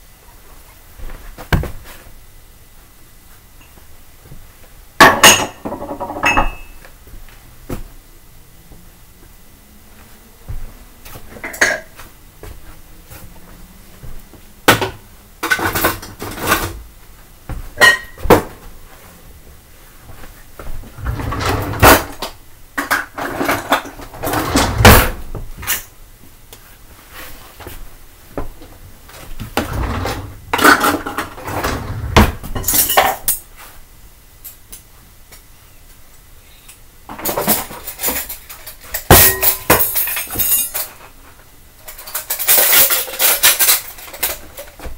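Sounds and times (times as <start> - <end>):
plates and cutlery clattering: 5.0 - 6.8, 41.9 - 44.8.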